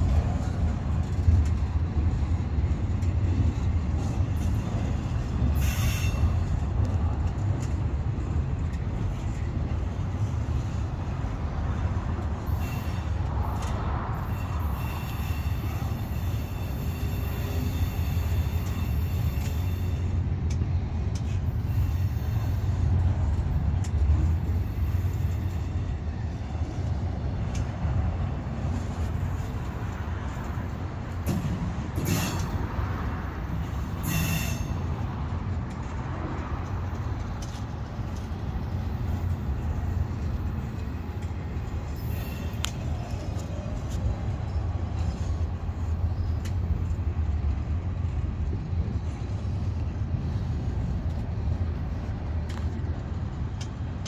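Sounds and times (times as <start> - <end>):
freight train wheels rumbling: 0.0 - 54.0
wheel squeal: 14.2 - 20.1, 34.0 - 34.8, 41.9 - 43.8.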